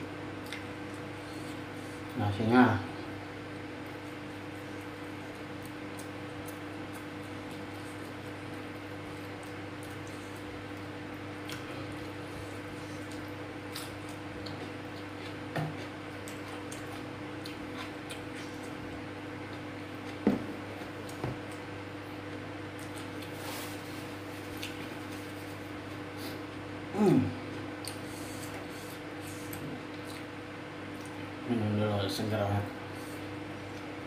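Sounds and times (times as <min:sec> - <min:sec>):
wet chewing and squishing: 0:04.2 - 0:18.8, 0:24.4 - 0:25.0.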